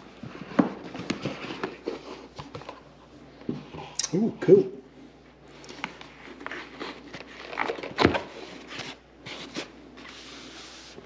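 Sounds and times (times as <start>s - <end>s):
box and packaging being handled: 0.0s - 3.0s, 5.6s - 11.0s.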